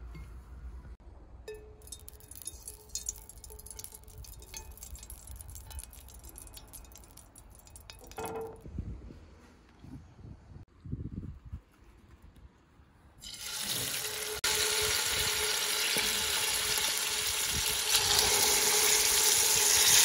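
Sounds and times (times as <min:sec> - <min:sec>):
spatula clinking on glass: 0:01.5 - 0:08.5.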